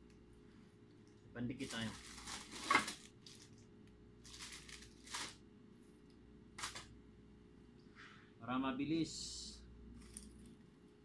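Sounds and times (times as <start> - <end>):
plastic modules rustling and clattering: 1.5 - 3.6, 4.2 - 5.4.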